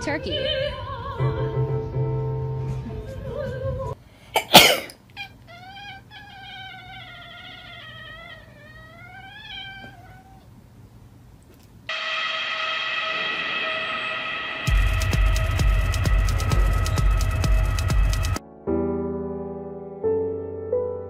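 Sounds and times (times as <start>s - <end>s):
cat yowling: 5.1s - 10.5s
loud burst of noise: 11.9s - 18.4s.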